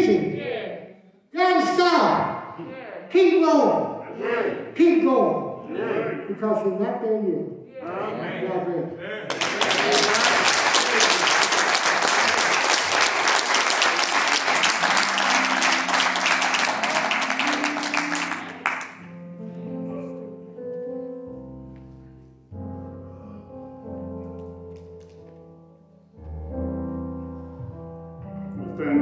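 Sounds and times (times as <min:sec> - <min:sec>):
congregation applauding: 0:09.3 - 0:19.2
slow keyboard chords: 0:13.8 - 0:29.0.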